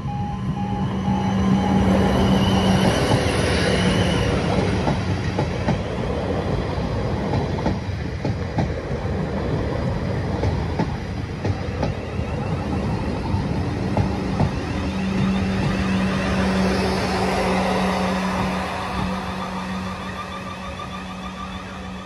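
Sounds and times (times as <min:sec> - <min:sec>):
level crossing warning tone: 0:00.0 - 0:04.7, 0:14.7 - 0:22.0
electric train passing: 0:00.0 - 0:22.0.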